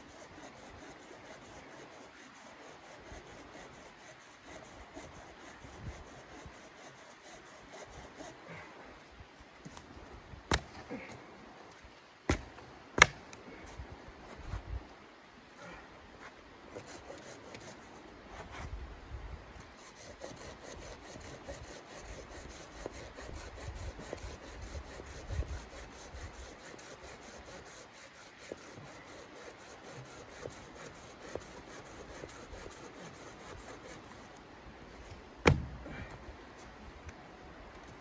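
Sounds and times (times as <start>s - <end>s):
hand saw cutting wood: 0.0s - 8.6s, 19.7s - 34.3s
sharp loud knock: 35.4s - 35.7s.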